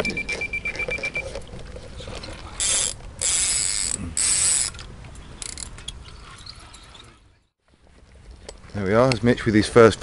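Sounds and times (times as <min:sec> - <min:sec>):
fishing reel whirring: 0:02.6 - 0:04.8.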